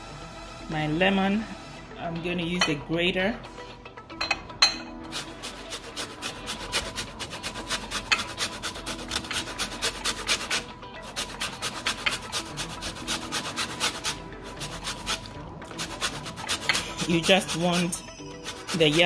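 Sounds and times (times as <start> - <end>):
lemon rasping on a metal grater: 5.1 - 19.0.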